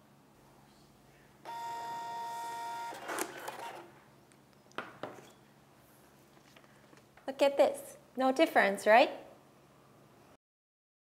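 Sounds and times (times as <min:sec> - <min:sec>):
printer motor whine: 0:01.5 - 0:03.9
printer rasp: 0:02.9 - 0:03.9.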